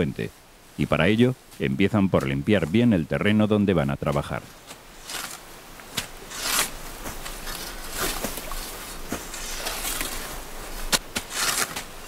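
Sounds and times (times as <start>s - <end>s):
sickles swishing through grass: 4.1s - 12.0s.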